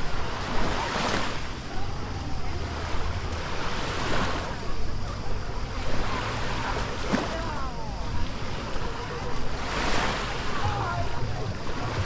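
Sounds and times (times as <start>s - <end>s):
faint distant voices: 0.0s - 12.0s
sea waves washing onto beach: 0.0s - 12.0s.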